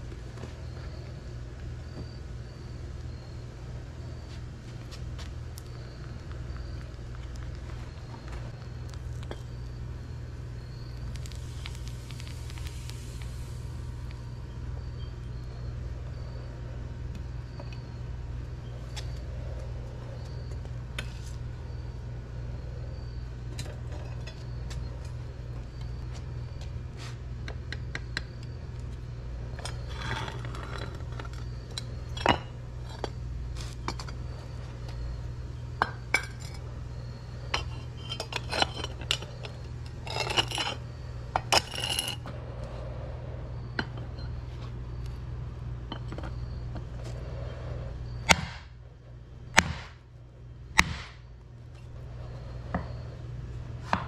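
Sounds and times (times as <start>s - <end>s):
low hum: 0.0s - 53.9s
metal clinks and scrapes: 37.5s - 42.3s.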